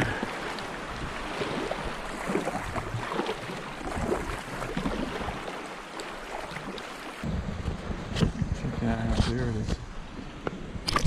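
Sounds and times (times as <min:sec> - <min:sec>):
water splashing around kayak: 0:00.0 - 0:11.0
wind noise on microphone: 0:07.2 - 0:11.0.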